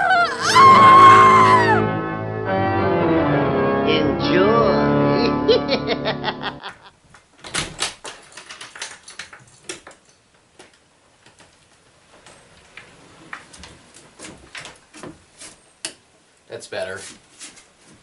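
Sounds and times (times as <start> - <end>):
intro music: 1.8 - 6.6.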